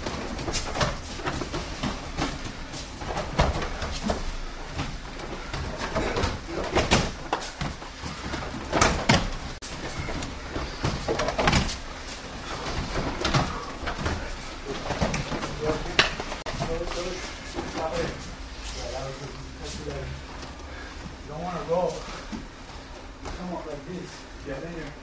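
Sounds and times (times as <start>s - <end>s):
bodies thudding on foam mats: 0.0s - 18.2s.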